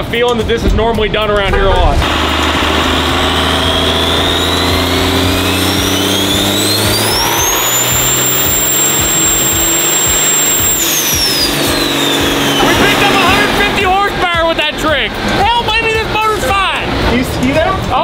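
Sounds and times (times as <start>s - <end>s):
diesel engine at full throttle: 1.3s - 18.0s
turbo whistle: 2.9s - 13.5s.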